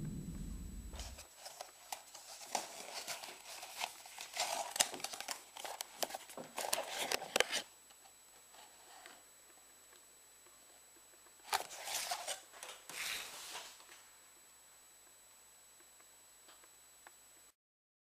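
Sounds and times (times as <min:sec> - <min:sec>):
low rumble: 0:00.0 - 0:01.2
cardboard and paper rustling: 0:01.1 - 0:07.7, 0:11.4 - 0:14.0.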